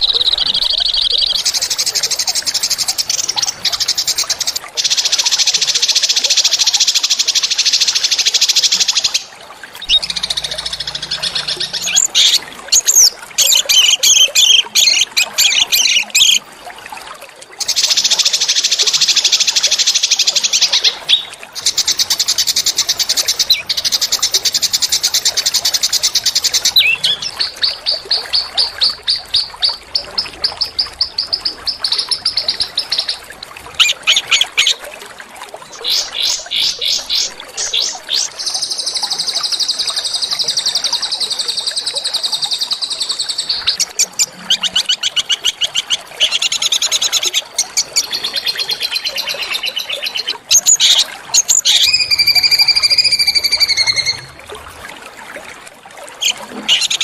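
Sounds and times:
songbird trilling: 0:07.8 - 0:16.4, 0:17.6 - 0:28.5, 0:42.2 - 0:54.4.

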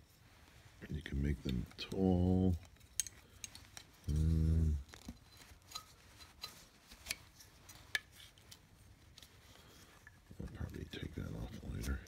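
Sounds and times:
person humming: 0:04.1 - 0:04.9.

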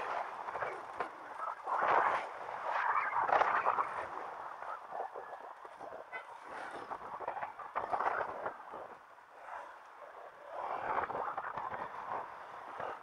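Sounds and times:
muffled bike clatter and rumble: 0:00.0 - 0:13.0.

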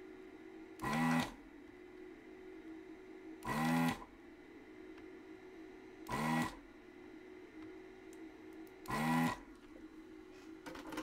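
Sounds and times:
faint steady hum: 0:00.0 - 0:11.0
desoldering vacuum pump bursts: 0:06.0 - 0:06.6, 0:08.8 - 0:09.4.

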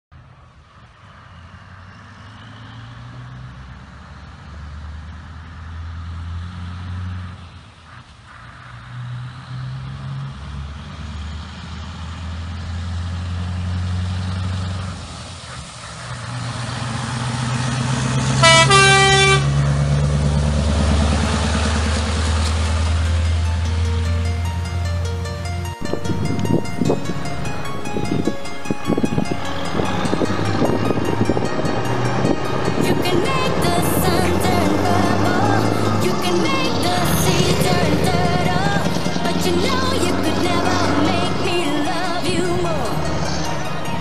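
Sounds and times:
truck engine shifting gears: 0:00.8 - 0:44.0
truck air horn blast: 0:18.2 - 0:19.9.

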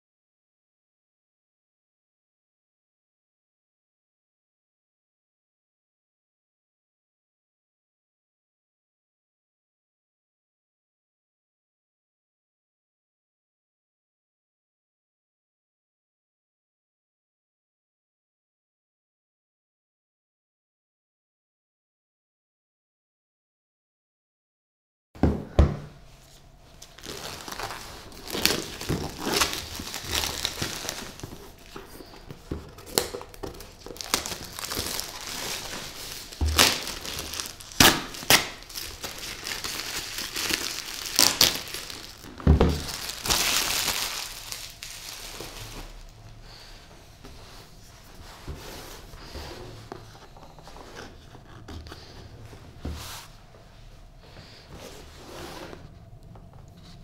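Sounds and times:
packaging crinkling and rustling: 0:26.8 - 0:46.2.

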